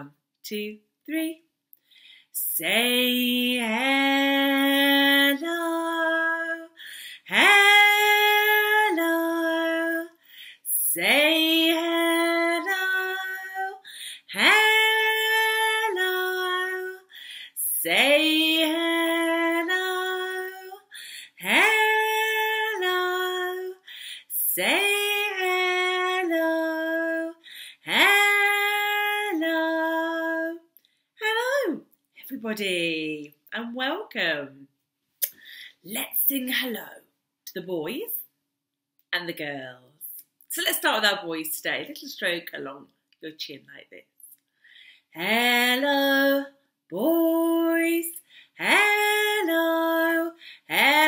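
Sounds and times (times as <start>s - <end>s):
woman singing unaccompanied: 2.4s - 33.2s, 45.2s - 51.0s.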